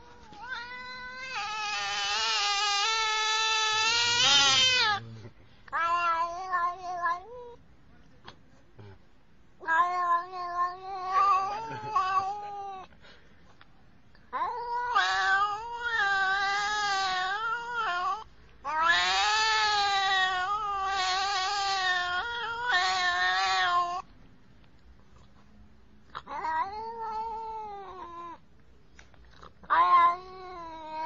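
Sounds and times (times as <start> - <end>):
cat yowling: 0.0 - 5.1, 5.7 - 7.6, 9.6 - 12.9, 14.3 - 24.1, 26.1 - 28.4, 29.6 - 31.0.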